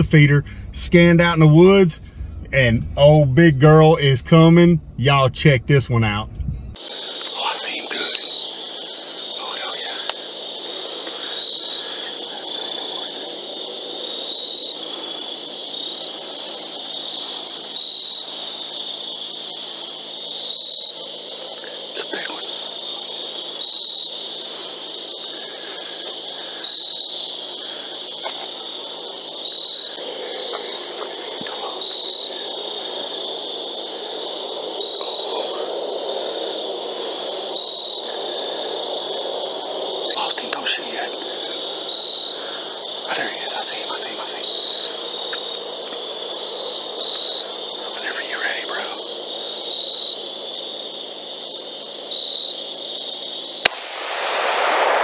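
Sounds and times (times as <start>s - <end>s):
bright insect chirp: 0.0s - 55.0s
crickets trilling: 0.0s - 55.0s
low rustling noise: 6.2s - 6.8s.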